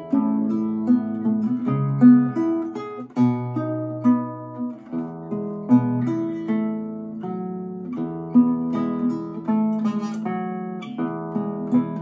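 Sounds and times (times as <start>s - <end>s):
fingerpicked classical guitar: 0.0s - 12.0s.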